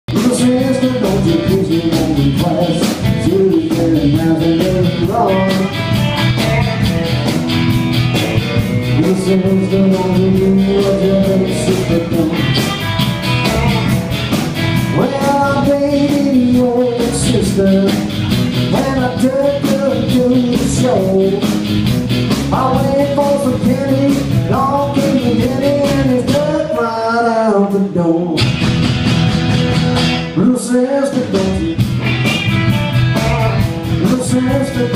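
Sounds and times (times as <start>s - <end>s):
man singing: 0.1s - 6.8s, 8.8s - 12.8s, 14.8s - 21.7s, 22.4s - 28.5s, 30.2s - 31.9s, 33.0s - 34.9s
live rock band playing: 0.1s - 34.9s.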